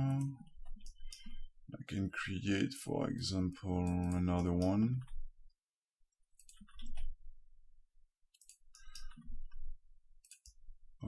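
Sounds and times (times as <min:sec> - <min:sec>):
mouse and keyboard clicks: 0:08.4 - 0:09.6, 0:10.2 - 0:10.6.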